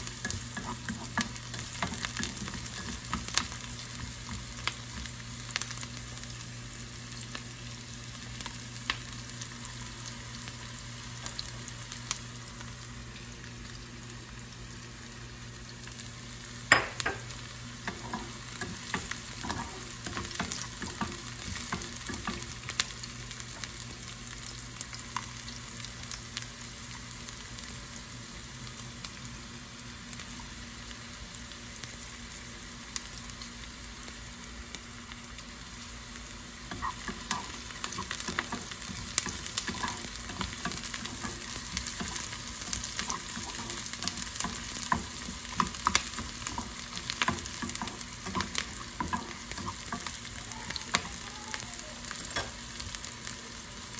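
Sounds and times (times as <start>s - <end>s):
spatula scraping and stirring: 0.0s - 5.0s, 17.8s - 22.5s, 36.7s - 51.1s
onions sizzling in oil: 0.0s - 53.9s.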